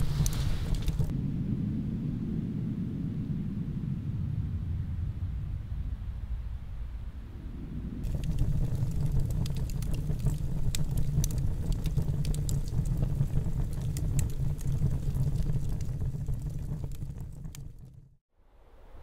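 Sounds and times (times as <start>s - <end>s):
fire crackling and popping: 0.0s - 1.1s, 8.0s - 18.2s
low rumble of fire: 0.0s - 19.0s.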